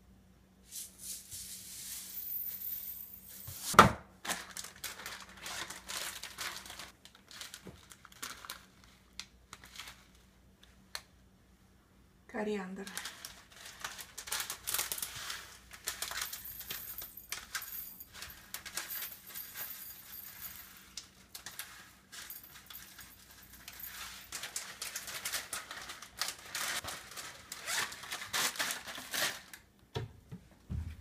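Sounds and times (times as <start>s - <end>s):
plastic bag crinkling: 4.2s - 10.2s, 12.9s - 29.6s.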